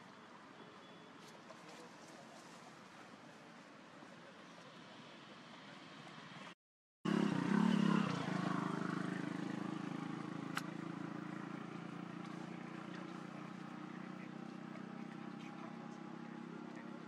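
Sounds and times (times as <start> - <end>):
sharp click: 10.5 - 10.7.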